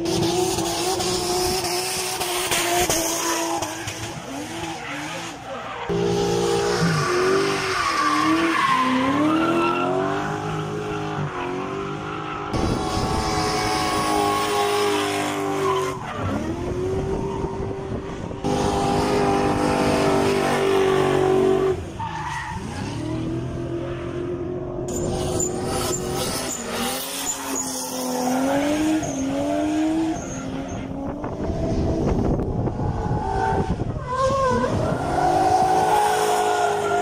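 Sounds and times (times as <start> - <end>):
tyres squealing and sliding: 3.1 - 12.6, 24.9 - 30.9, 32.9 - 37.0
car engine revving hard: 25.0 - 30.2.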